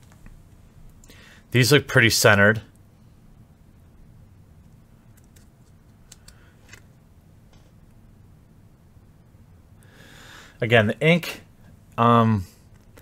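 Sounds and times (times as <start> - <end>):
low room hum: 0.0 - 13.0
card clicking and scraping: 5.1 - 7.0.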